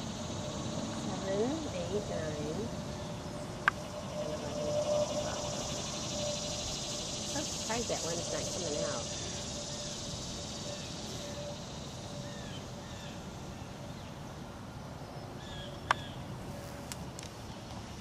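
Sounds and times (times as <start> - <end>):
steady background hiss: 0.0 - 18.0
faint bird chirps: 1.2 - 14.2.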